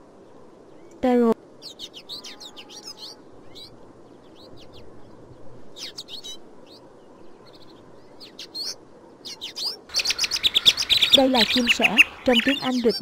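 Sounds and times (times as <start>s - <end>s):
background noise: 0.0s - 13.0s
sparrows chirping: 0.3s - 13.0s.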